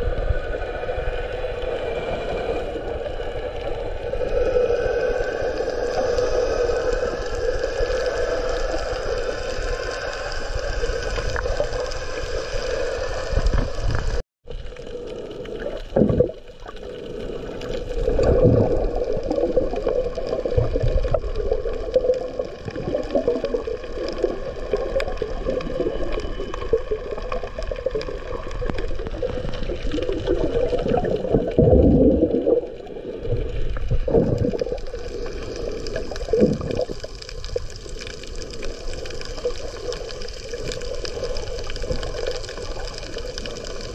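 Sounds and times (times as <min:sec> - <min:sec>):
bubbling surges: 0:00.0 - 0:43.9
underwater sloshing and gurgling: 0:00.0 - 0:43.9.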